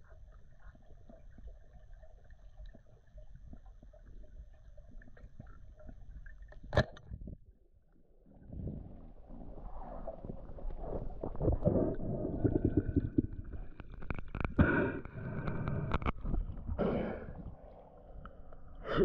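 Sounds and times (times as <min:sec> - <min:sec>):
underwater knocks and clicks: 0:00.0 - 0:07.4, 0:10.7 - 0:16.8.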